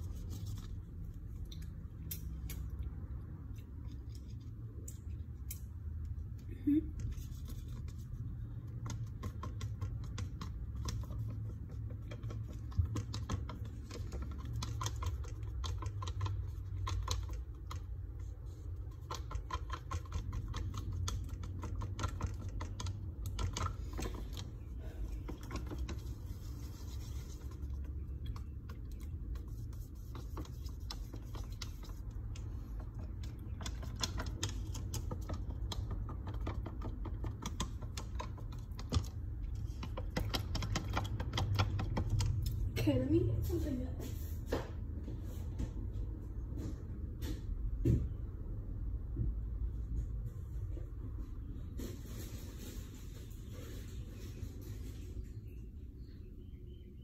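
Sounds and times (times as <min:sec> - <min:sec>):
stick stirring in paper cup: 0:00.0 - 0:44.4.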